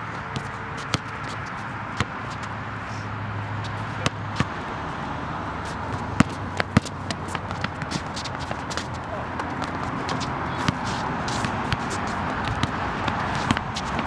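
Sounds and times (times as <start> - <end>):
steady background hum: 0.0 - 14.0
basketball bouncing on court: 0.3 - 2.2, 5.8 - 14.0.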